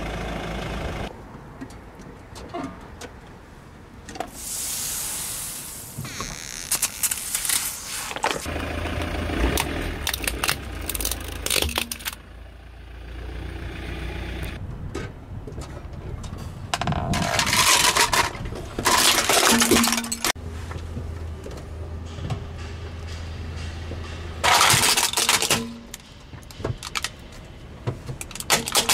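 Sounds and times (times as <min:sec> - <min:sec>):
engine rumble: 0:00.0 - 0:04.1, 0:08.0 - 0:28.9
plastic cracking under tyre: 0:09.6 - 0:12.2.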